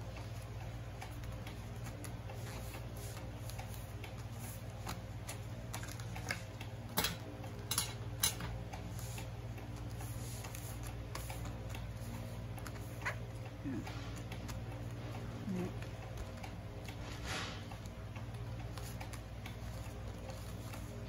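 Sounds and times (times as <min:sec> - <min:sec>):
steady low hum: 0:00.0 - 0:21.0
paper folding and rustling: 0:01.1 - 0:06.5.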